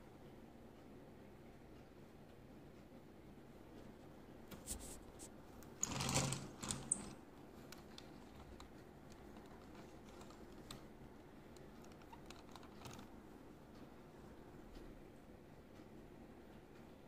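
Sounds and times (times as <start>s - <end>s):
plastic models clicking: 5.7s - 10.9s, 11.5s - 13.1s.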